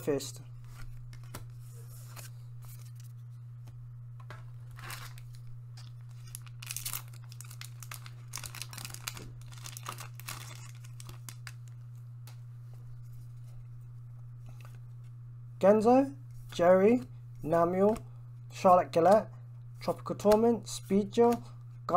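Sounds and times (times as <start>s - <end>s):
foil wrapper crinkling and tearing: 4.7s - 11.8s.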